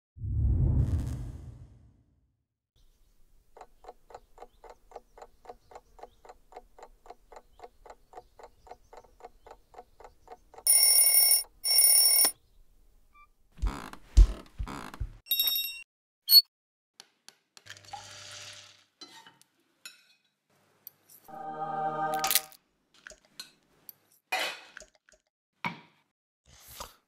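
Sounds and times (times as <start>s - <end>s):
whoosh: 0.2s - 2.1s
alarm clock bell ringing: 10.7s - 12.3s.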